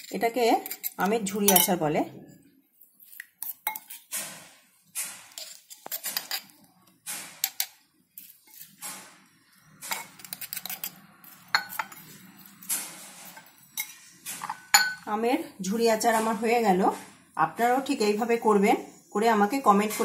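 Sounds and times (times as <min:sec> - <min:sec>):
spoon scraping and clinking on glass: 0:00.0 - 0:01.8, 0:03.0 - 0:04.1, 0:05.3 - 0:06.5, 0:07.4 - 0:08.8, 0:09.8 - 0:15.0.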